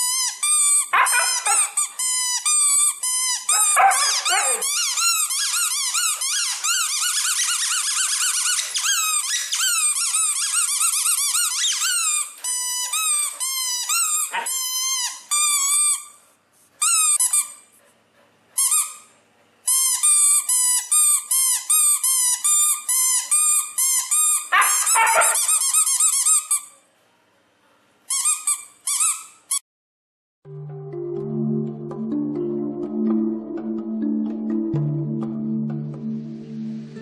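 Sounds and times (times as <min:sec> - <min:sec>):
squeaky toy ball squeaking: 0:00.0 - 0:16.2, 0:16.8 - 0:17.7, 0:18.6 - 0:26.8, 0:28.1 - 0:29.6.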